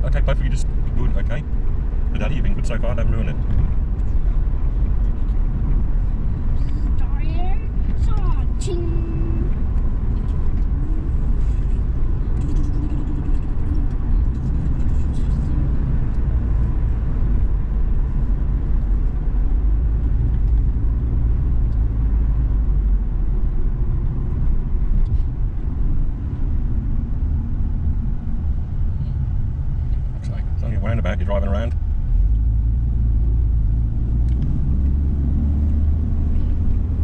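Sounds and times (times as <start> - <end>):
car interior road rumble: 0.0 - 37.0.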